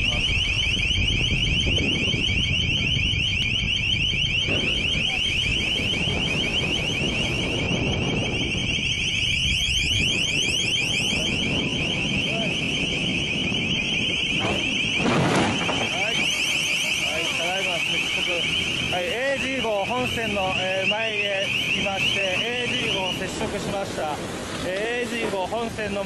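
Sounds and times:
electronic alarm sweeping tone: 0.0 - 24.0.

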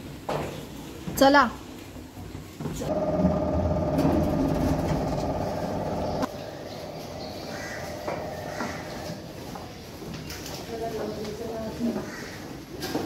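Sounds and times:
lift hum and rumble: 2.9 - 9.0.

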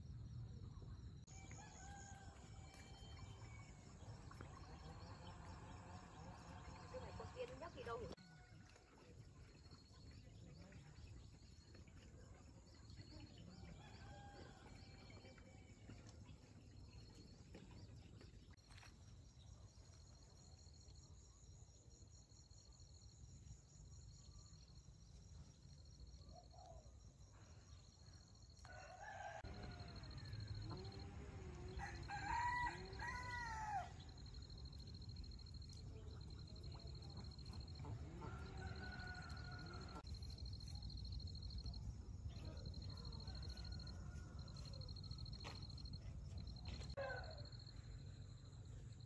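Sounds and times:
rooster crowing: 28.6 - 34.0, 38.3 - 40.0.

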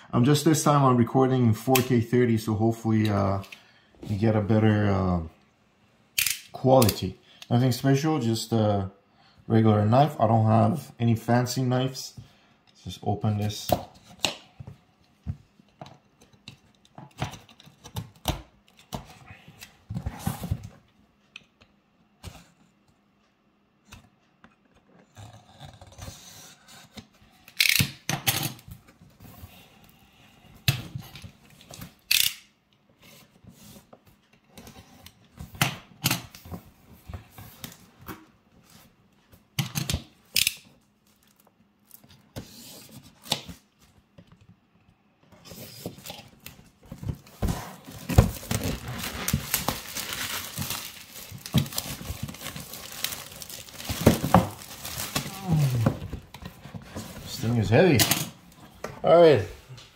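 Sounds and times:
knife cutting plastic wrap: 47.7 - 55.9
plastic film crinkling: 47.8 - 55.9.

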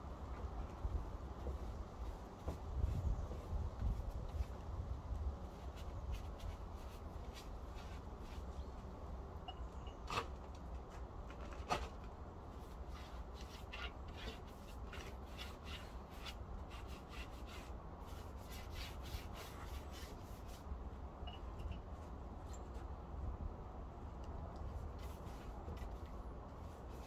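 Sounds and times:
paintbrush rubbing on rough board: 12.6 - 20.6.

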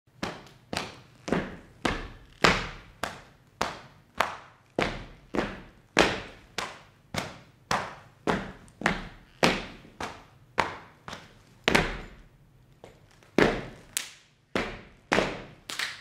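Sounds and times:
sharp slaps with echo: 6.0 - 8.5.

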